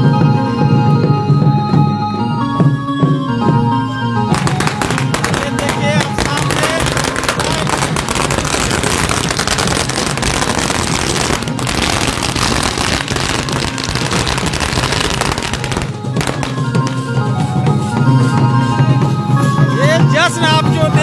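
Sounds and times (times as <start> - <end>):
firecrackers crackling: 4.3 - 17.2.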